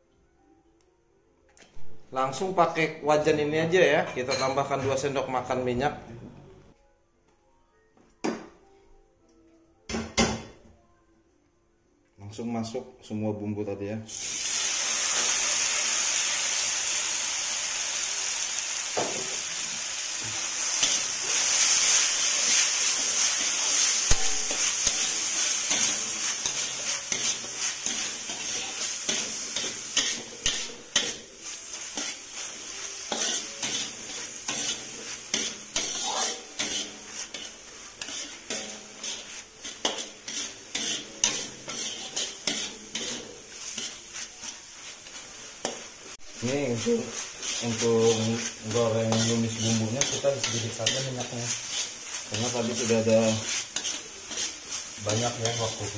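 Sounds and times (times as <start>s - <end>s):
vegetables sizzling in hot oil: 14.1s - 55.9s
metal spatula scraping pan: 20.2s - 55.9s.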